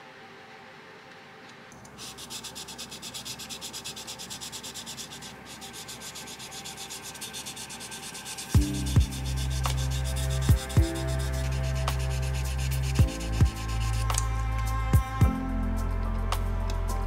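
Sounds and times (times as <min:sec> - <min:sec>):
sandpaper rubbing plastic: 0:02.0 - 0:15.0.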